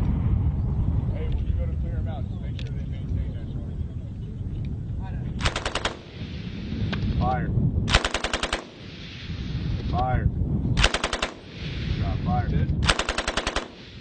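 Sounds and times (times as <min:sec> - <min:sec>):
machine gun automatic fire: 0:05.4 - 0:06.1, 0:07.9 - 0:08.8, 0:10.8 - 0:11.5, 0:12.8 - 0:13.8.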